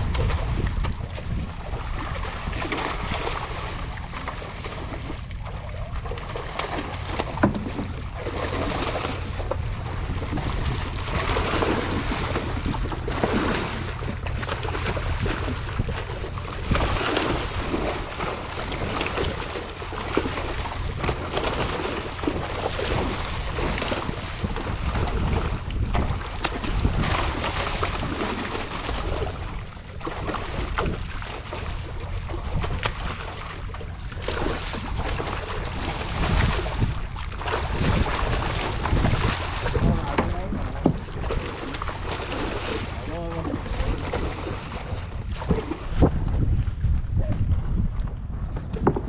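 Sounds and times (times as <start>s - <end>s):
fish splashing in water: 0.0s - 46.2s
steady low rumble: 0.0s - 49.0s.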